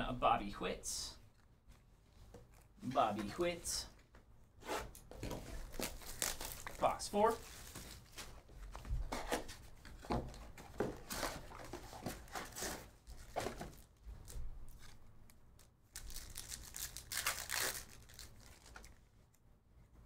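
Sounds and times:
card packs rustling: 0:05.2 - 0:14.0, 0:16.0 - 0:19.0
foil wrapper tearing: 0:05.7 - 0:06.9, 0:16.0 - 0:19.0.

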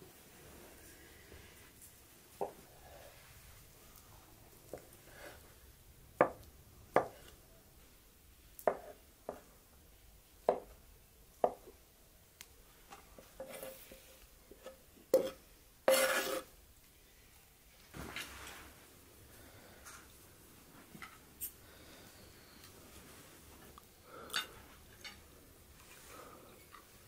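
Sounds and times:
knife scraping: 0:15.1 - 0:16.5.

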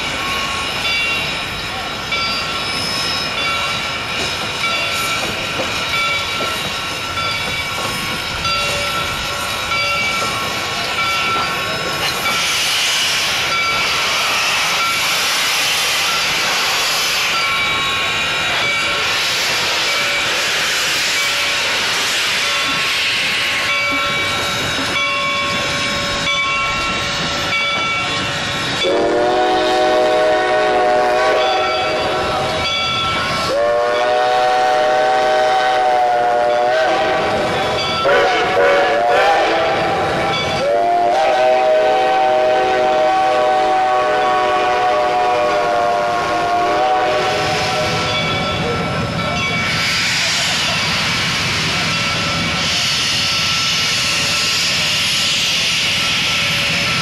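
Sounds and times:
steam locomotive hissing: 0:00.0 - 0:57.0
steam whistle chord: 0:28.8 - 0:32.2, 0:33.4 - 0:40.0, 0:40.6 - 0:48.1.

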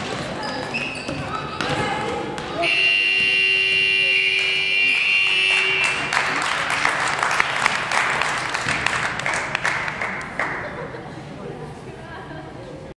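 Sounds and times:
buzzer steady tone: 0:02.6 - 0:06.2
spectators clapping: 0:04.3 - 0:10.8.

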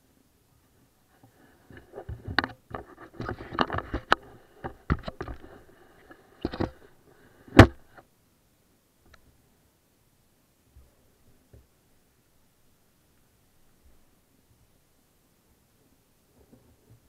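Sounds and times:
camera handling knocks and scrapes: 0:01.7 - 0:05.7, 0:06.4 - 0:06.9, 0:07.5 - 0:08.0.

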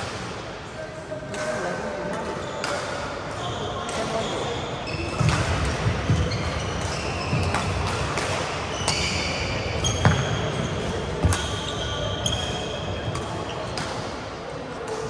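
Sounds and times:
shoes squeaking on floor: 0:03.4 - 0:07.8, 0:08.4 - 0:13.7
racket striking shuttlecock: 0:05.1 - 0:09.3.

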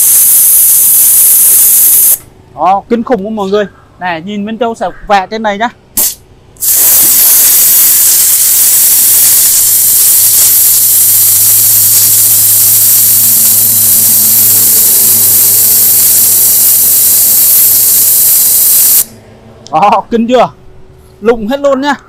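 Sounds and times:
pressure washer water jet hissing: 0:00.0 - 0:02.2, 0:06.0 - 0:19.1.

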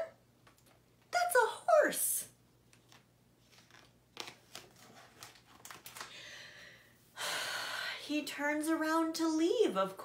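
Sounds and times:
book pages turning: 0:02.7 - 0:06.1.

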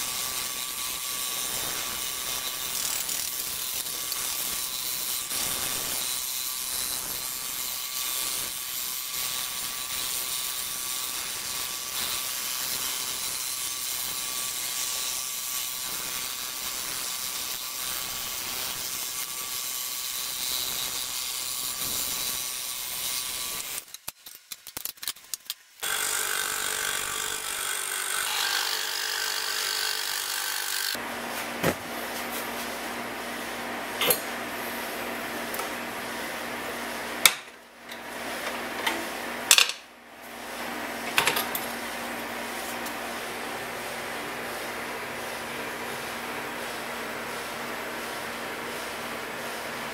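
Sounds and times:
scroll saw cutting wood: 0:00.0 - 0:24.1, 0:25.8 - 0:31.0.

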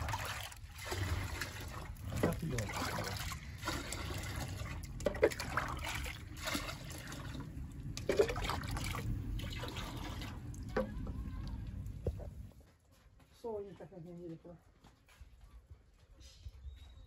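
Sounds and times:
liquid poured into bucket: 0:00.0 - 0:12.3
cup scooping liquid: 0:00.0 - 0:12.4.

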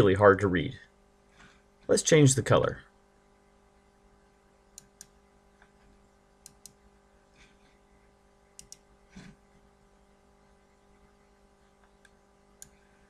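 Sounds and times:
computer mouse clicks: 0:04.7 - 0:05.7, 0:06.4 - 0:06.8, 0:08.6 - 0:09.4, 0:11.8 - 0:12.8.

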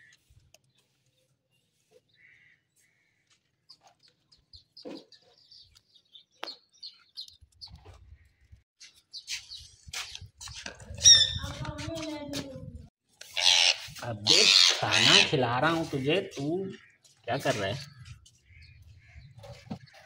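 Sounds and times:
bird chirping: 0:03.7 - 0:11.4.

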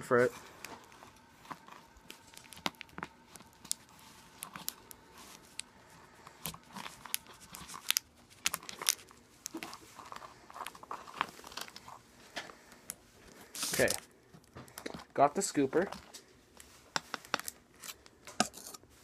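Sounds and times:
spoon scraping in a tub: 0:18.4 - 0:18.9.

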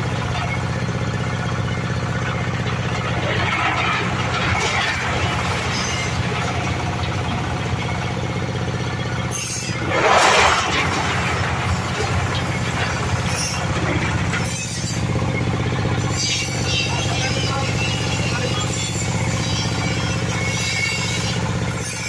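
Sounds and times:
small engine humming: 0:00.0 - 0:22.0
palm fruit rattling through grate: 0:02.3 - 0:08.3, 0:09.7 - 0:14.9.

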